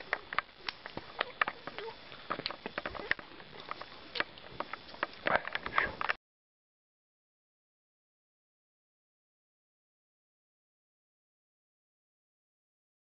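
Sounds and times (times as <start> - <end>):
faint hiss: 0.0 - 6.2.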